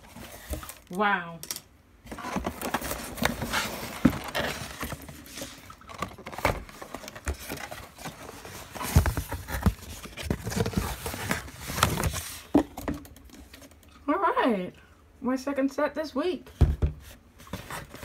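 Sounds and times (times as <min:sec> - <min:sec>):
cardboard box being opened: 0:02.1 - 0:12.5.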